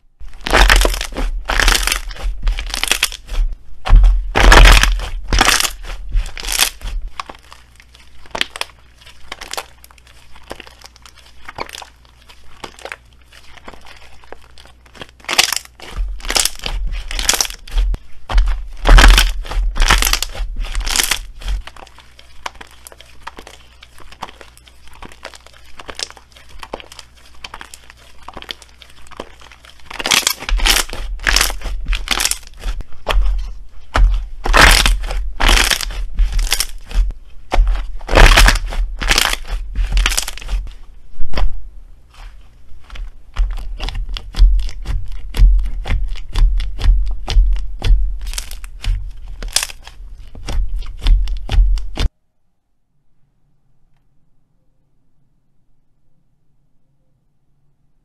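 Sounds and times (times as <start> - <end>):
slime clicking and popping: 0.4 - 7.4, 18.4 - 21.5, 29.2 - 40.6, 42.9 - 52.1.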